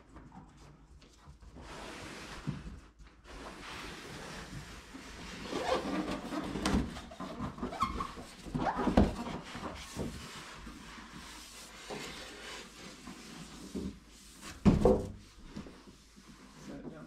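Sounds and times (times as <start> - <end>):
cardboard scraping against packing: 3.5 - 14.5.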